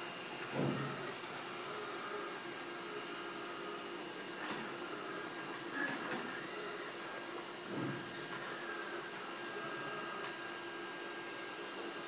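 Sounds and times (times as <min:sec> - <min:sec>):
robot vacuum whirring: 0:00.0 - 0:12.0.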